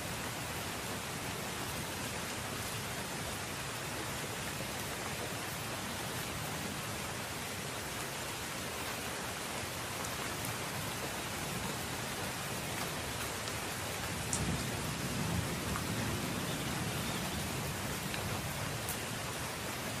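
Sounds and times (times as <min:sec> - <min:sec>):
steady rain: 0:00.0 - 0:20.0
rain drop ticks: 0:12.7 - 0:14.8, 0:15.6 - 0:16.0, 0:18.0 - 0:19.1.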